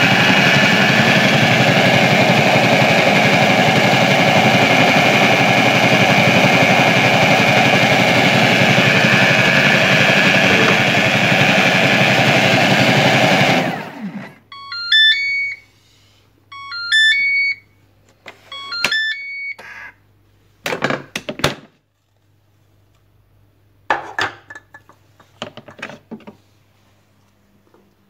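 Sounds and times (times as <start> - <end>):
kitchen machine motor running down: 0.0 - 14.4.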